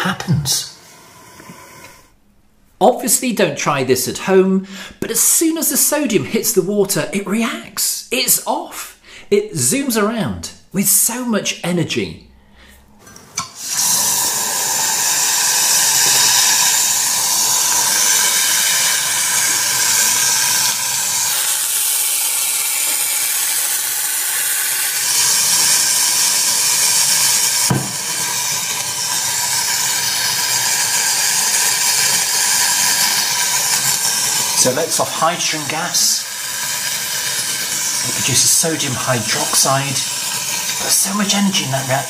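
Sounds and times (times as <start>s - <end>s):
sodium fizzing on water: 13.6s - 42.0s.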